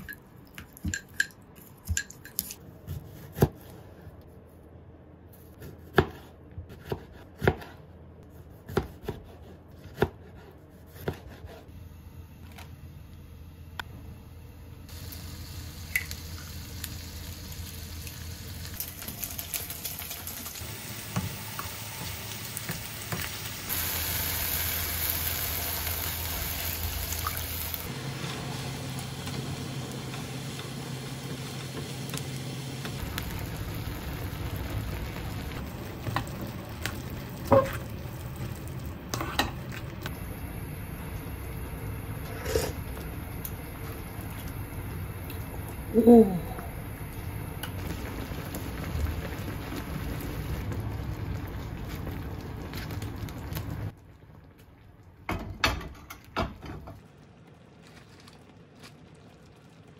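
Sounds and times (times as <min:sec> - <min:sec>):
food sizzling in a frying pan: 0:14.9 - 0:38.9, 0:46.7 - 0:54.0.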